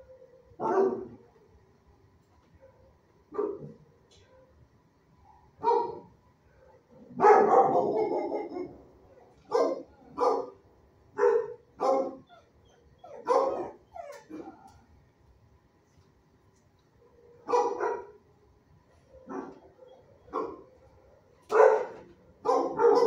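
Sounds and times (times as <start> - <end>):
dog barking: 0.6 - 1.2, 2.6 - 4.6, 5.2 - 10.6, 11.2 - 12.3, 13.1 - 14.6, 17.3 - 18.2, 19.1 - 23.0.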